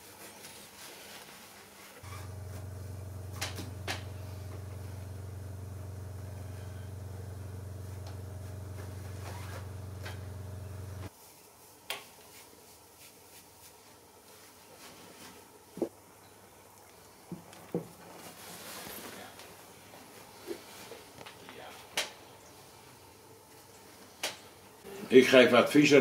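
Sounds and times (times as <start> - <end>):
faint rustles: 0.2 - 15.5
steady low hum: 2.0 - 11.1.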